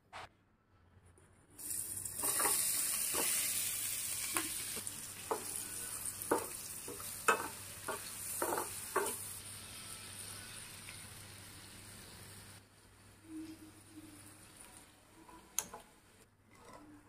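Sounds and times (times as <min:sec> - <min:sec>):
food sizzling in hot oil: 0:01.6 - 0:12.6
spatula scraping and knocking a pan: 0:02.2 - 0:03.4, 0:05.2 - 0:09.2.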